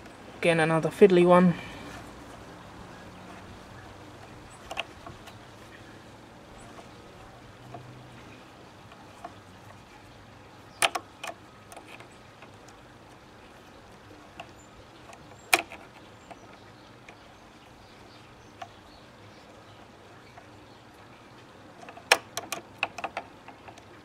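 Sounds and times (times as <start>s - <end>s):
sharp metal clicks: 4.2s - 5.4s, 10.7s - 12.8s, 14.1s - 19.0s, 21.8s - 24.0s.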